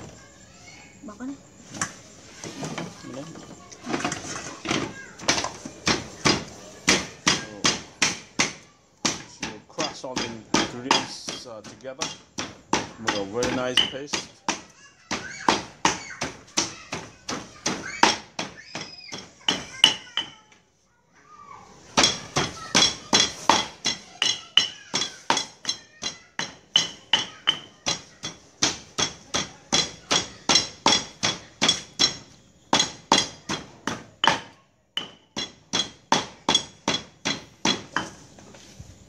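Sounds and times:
stone pestle pounding in mortar: 10.1s - 20.4s, 22.0s - 38.2s.

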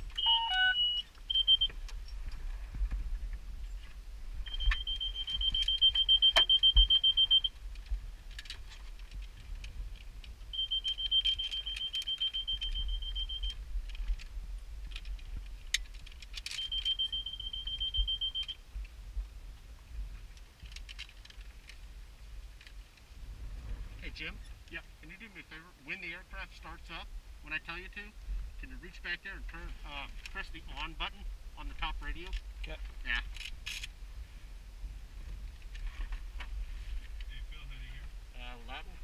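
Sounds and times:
electronic warning beeper: 0.1s - 1.8s, 4.4s - 7.6s, 10.5s - 13.6s, 16.5s - 18.6s.

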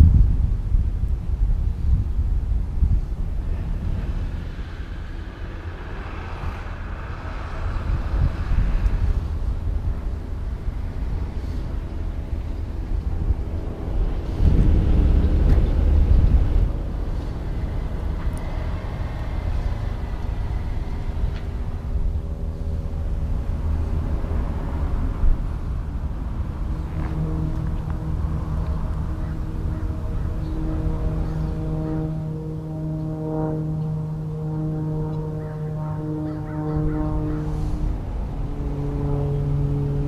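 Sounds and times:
low rumble: 0.0s - 40.0s.

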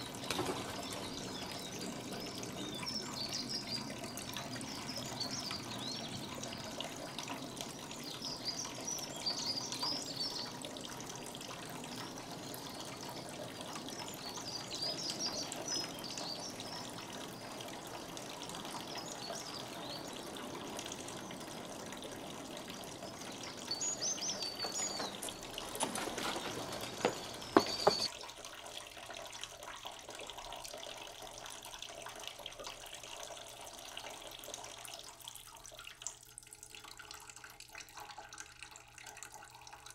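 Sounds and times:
songbirds chirping: 0.0s - 28.1s.

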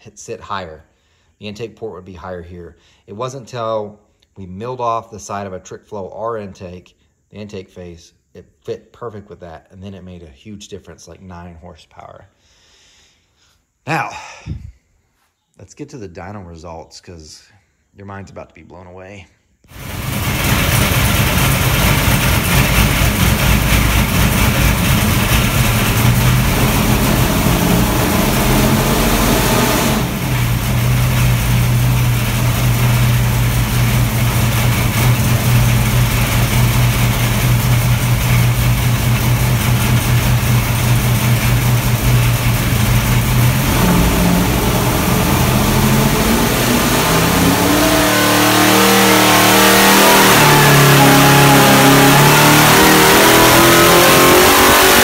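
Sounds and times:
engine running on dyno: 19.7s - 55.0s.

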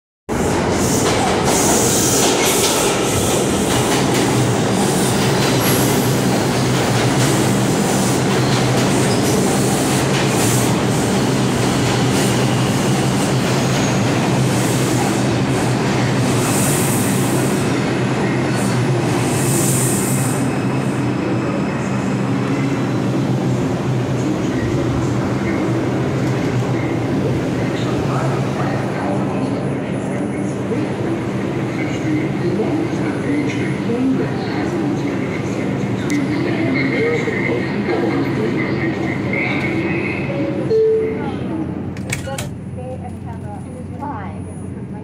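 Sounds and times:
train wheels running on rail: 0.4s - 20.6s.

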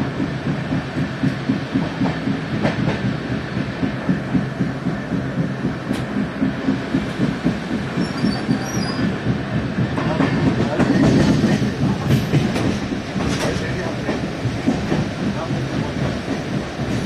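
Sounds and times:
train rumble inside carriage: 0.0s - 17.0s
wheels clattering on track: 3.8s - 17.0s.

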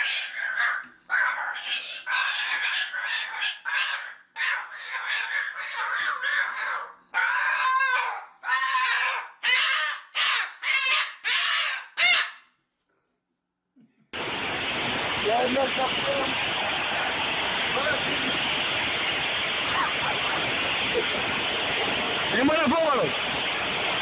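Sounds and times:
cockatoo squawking and chattering: 0.0s - 12.5s.

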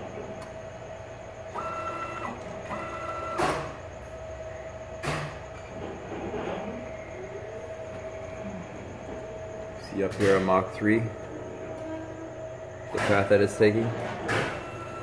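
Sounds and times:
stepper motors whining: 1.2s - 5.0s, 12.7s - 15.0s.

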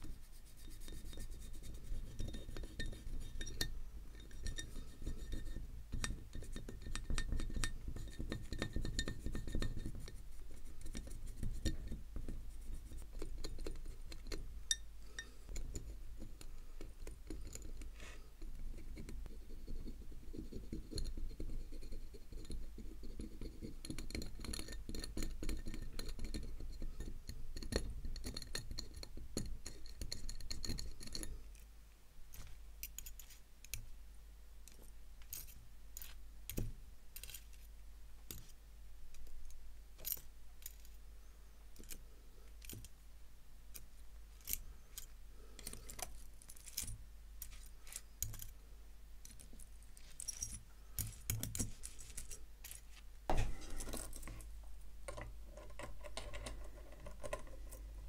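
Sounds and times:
small metal parts clinking: 44.4s - 48.6s, 49.2s - 52.9s.

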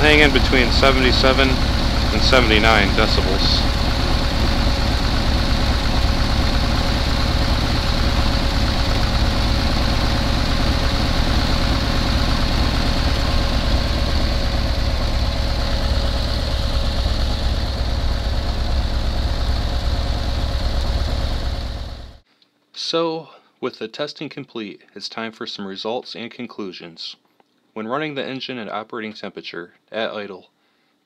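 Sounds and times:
car engine idling: 0.0s - 22.2s.

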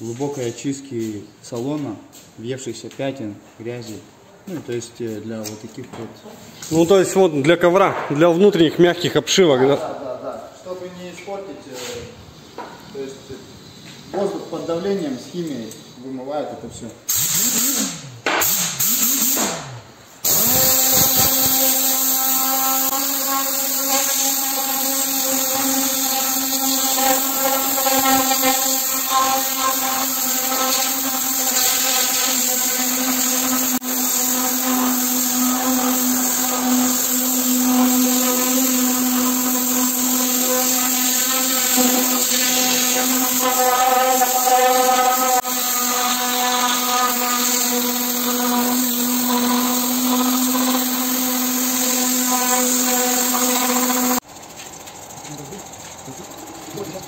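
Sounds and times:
air-powered cleaning gun buzzing: 17.1s - 57.0s.

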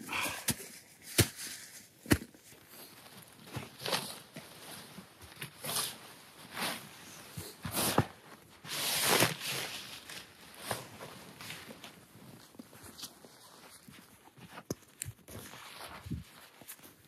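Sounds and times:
fabric rustling and swishing: 15.3s - 17.0s.

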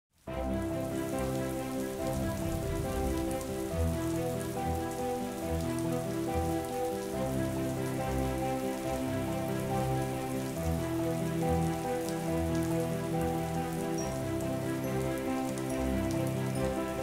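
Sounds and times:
steady rain falling: 0.1s - 17.0s
slow sustained music chords: 0.3s - 17.0s.

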